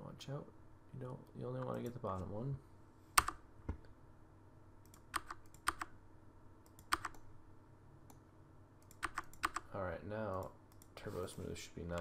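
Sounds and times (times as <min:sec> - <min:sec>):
computer keys clicking: 0:01.6 - 0:02.0, 0:03.2 - 0:03.4, 0:04.8 - 0:05.9, 0:06.6 - 0:07.3, 0:08.8 - 0:11.0.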